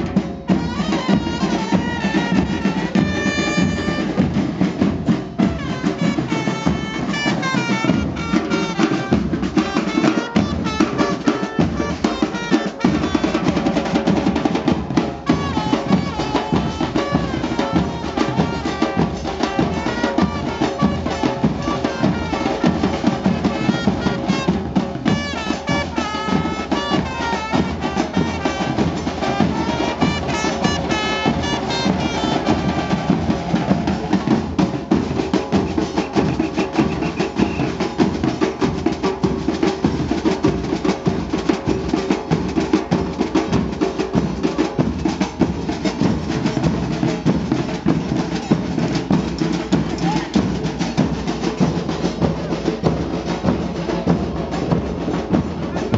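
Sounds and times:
trumpets playing melody: 0:00.0 - 0:04.8, 0:05.4 - 0:34.6
drums beaten with sticks: 0:00.0 - 0:55.9.

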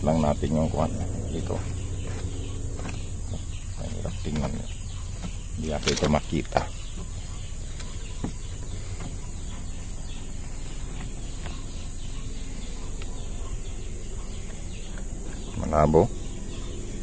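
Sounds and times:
low rumble: 0:00.0 - 0:05.6.

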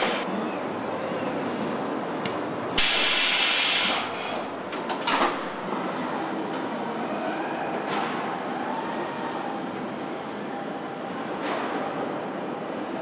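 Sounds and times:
air hiss: 0:02.8 - 0:04.4.

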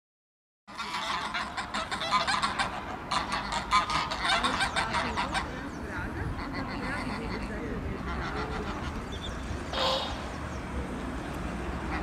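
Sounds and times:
geese honking: 0:00.7 - 0:05.7, 0:06.3 - 0:10.5, 0:11.8 - 0:12.0.

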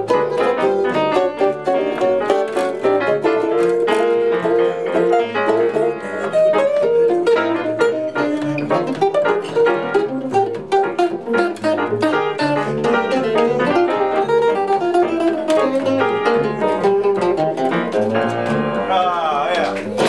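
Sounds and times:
electric jazz guitar run: 0:00.0 - 0:19.0
upright bass notes: 0:00.0 - 0:20.0.

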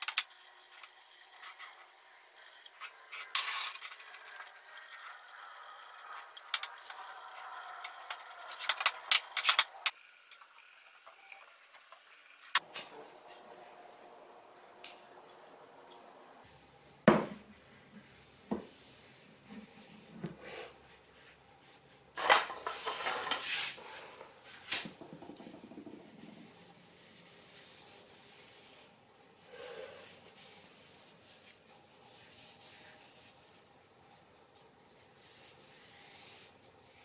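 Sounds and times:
wooden knocks: 0:24.9 - 0:26.2.

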